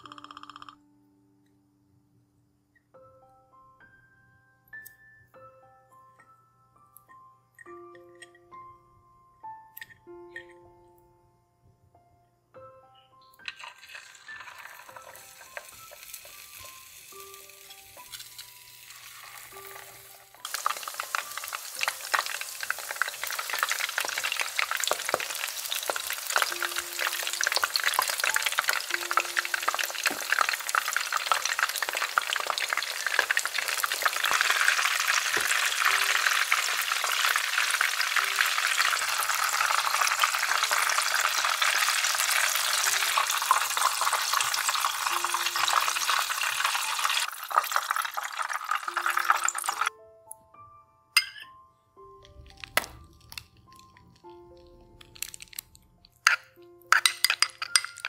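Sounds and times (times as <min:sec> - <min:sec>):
food sizzling in hot oil: 0:13.4 - 0:49.9.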